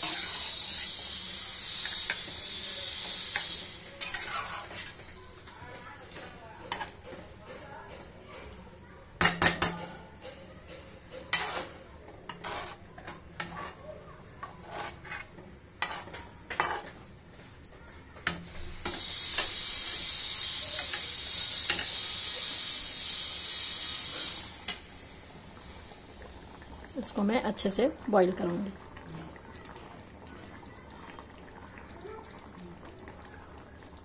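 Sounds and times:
spatula scraping wok: 0.0 - 8.6, 9.4 - 26.2
loud sizzling hiss: 18.6 - 26.0.

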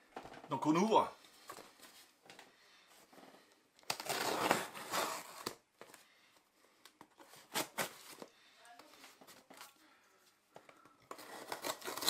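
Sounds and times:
packaging rustling and tearing: 11.1 - 12.0.

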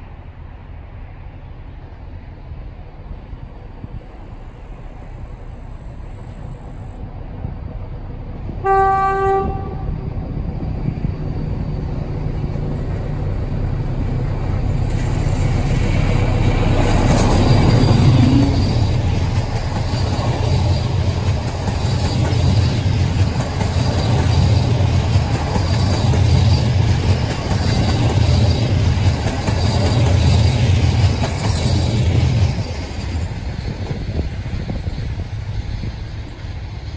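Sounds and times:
locomotive horn blast: 8.6 - 10.0.

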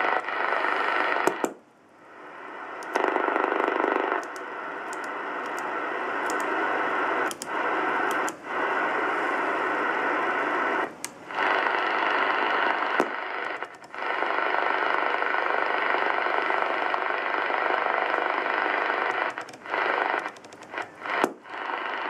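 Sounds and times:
radio static: 0.0 - 22.0
radio control clicks: 2.8 - 8.4, 12.7 - 14.0, 19.0 - 21.4.

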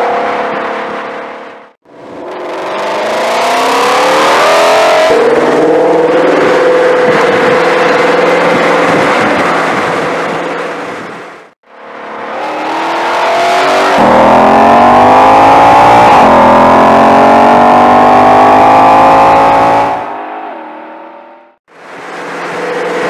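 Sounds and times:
car engine accelerating hard: 1.9 - 11.0, 11.8 - 20.2.

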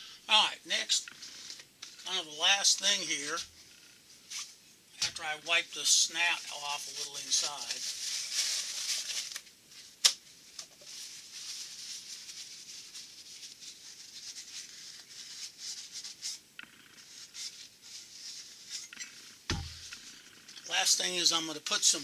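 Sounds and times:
rag rustling and rubbing: 6.1 - 20.2.

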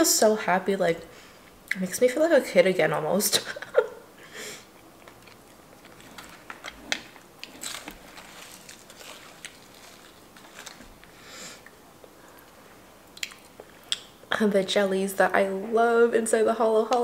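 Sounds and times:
person chewing and crunching food: 4.7 - 14.2.

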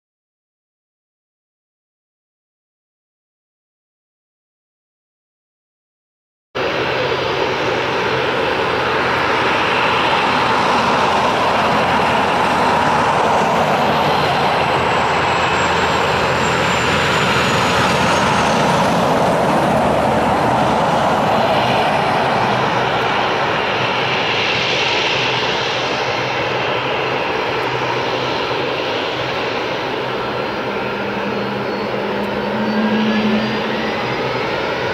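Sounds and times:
jet engines running: 6.6 - 34.9
faint high whistle: 30.1 - 34.9.

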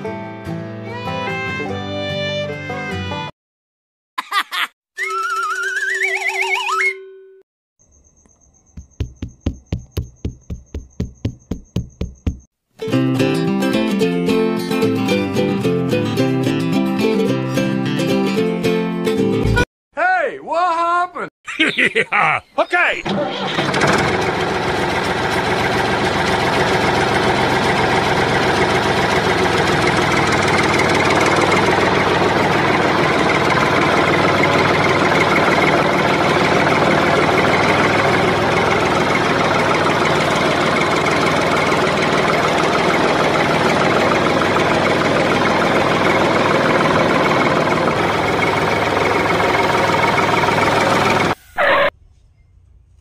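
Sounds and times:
tractor diesel engine idling: 23.1 - 51.9.

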